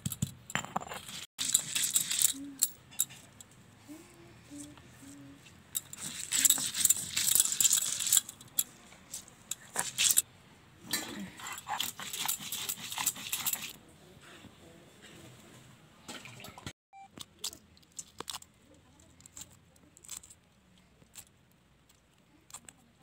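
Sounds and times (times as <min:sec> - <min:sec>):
stone roller grinding on stone: 0:05.8 - 0:08.2, 0:11.5 - 0:13.8.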